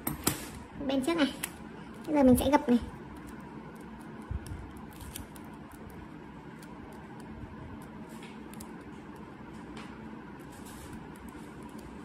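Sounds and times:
tape and paper crinkling: 3.1 - 9.7.

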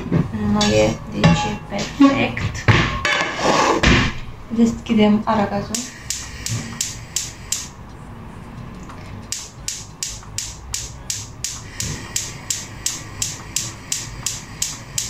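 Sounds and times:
gas stove igniter clicking: 5.7 - 7.7, 9.3 - 15.0.

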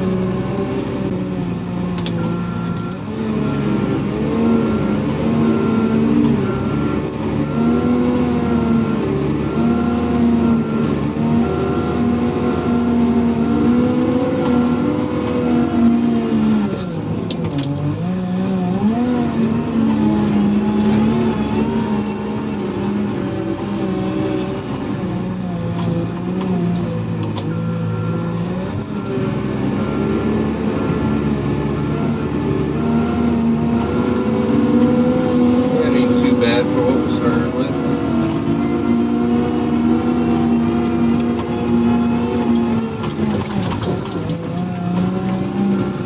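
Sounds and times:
diesel engine under load: 0.0 - 46.0
backup alarm beeping: 2.2 - 12.9.

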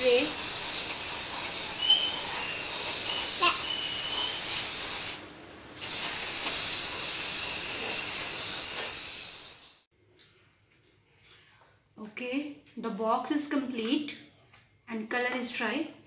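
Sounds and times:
aerosol spray can hissing: 0.0 - 5.2, 5.8 - 9.9.

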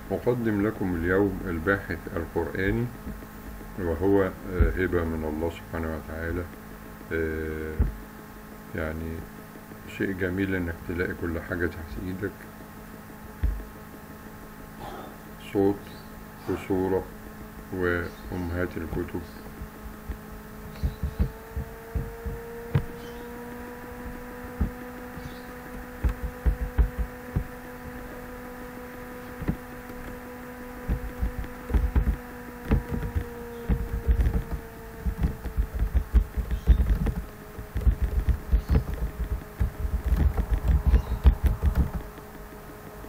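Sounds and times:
steady hum with faint tones: 0.0 - 43.0
computer keyboard typing: 30.8 - 42.8.

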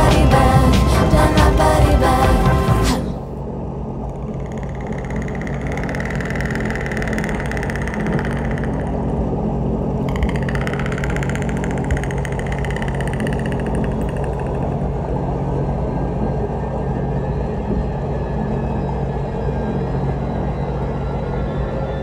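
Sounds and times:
high whine: 0.0 - 22.0
jet ski engine idling: 4.0 - 16.0.

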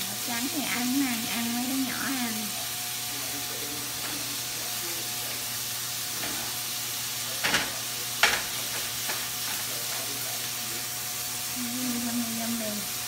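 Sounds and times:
food sizzling in a frying pan: 0.0 - 13.0
utensil clattering against pan: 7.4 - 10.1.

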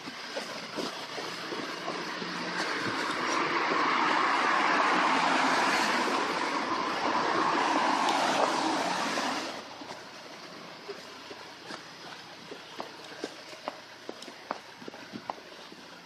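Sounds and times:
vehicle passing on wet road: 1.1 - 9.8.

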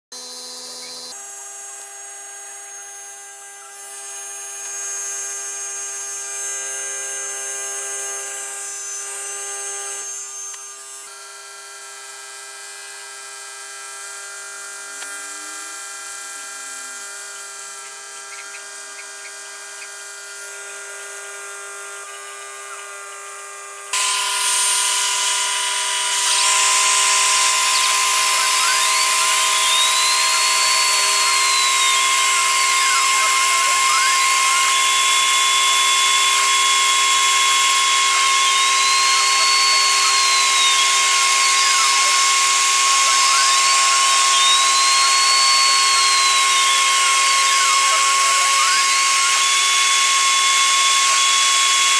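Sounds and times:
spindle motor whining: 0.2 - 51.9
end mill cutting into wood: 23.9 - 51.9.

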